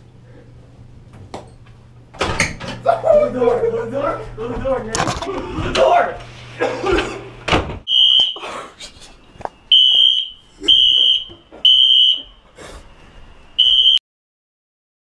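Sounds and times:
fire alarm beeping: 7.9 - 8.4, 9.7 - 12.4, 13.6 - 14.0.

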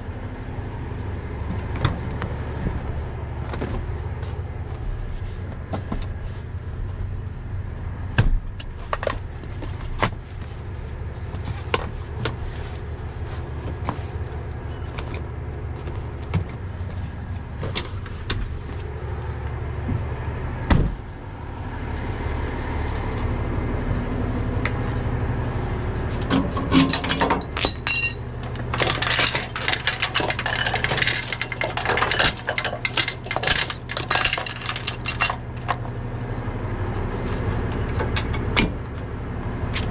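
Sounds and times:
truck engine idling: 0.0 - 39.9.

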